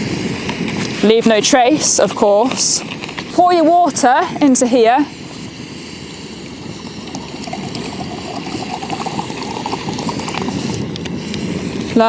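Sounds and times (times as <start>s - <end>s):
water pouring into cup: 6.8s - 10.9s.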